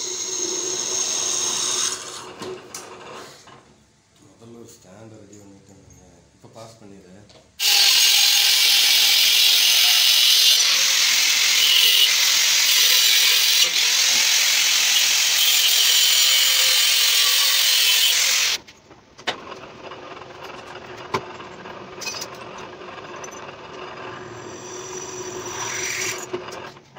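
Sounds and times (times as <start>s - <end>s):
angle grinder grinding metal: 7.6s - 18.6s, 21.6s - 26.6s.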